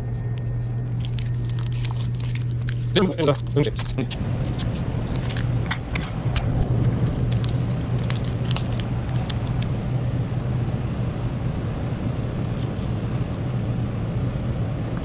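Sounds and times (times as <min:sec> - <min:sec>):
low mechanical hum: 0:00.0 - 0:15.0
masking tape crinkling: 0:00.2 - 0:09.8, 0:12.4 - 0:13.5.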